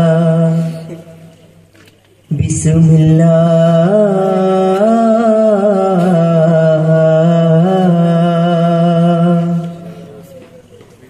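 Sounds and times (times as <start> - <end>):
man singing long note: 0.0 - 1.1, 2.3 - 10.3.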